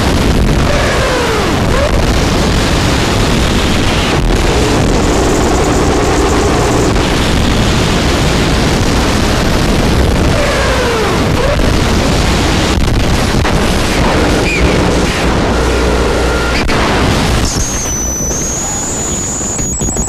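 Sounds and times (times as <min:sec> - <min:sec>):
distorted noise music: 0:00.0 - 0:20.0
high steady whine: 0:00.0 - 0:20.0
sliding tones: 0:03.9 - 0:07.9, 0:12.1 - 0:20.0.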